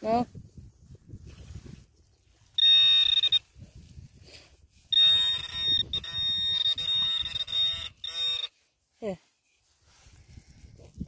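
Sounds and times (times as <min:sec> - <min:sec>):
metal detector buzzing alert: 0:02.6 - 0:03.5, 0:04.9 - 0:08.6.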